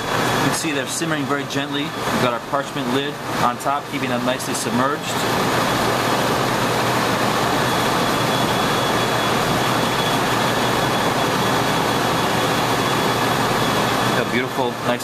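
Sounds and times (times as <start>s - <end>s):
faint high whine: 0.0s - 15.0s
kitchen ventilation rushing: 0.0s - 15.0s.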